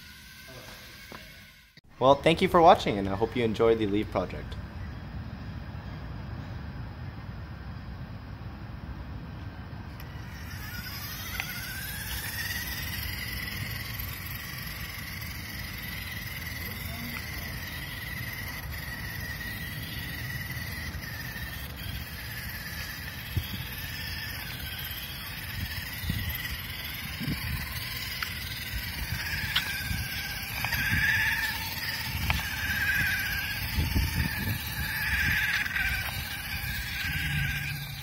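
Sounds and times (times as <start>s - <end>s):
electric motor whine: 0.0s - 1.8s, 9.6s - 38.0s.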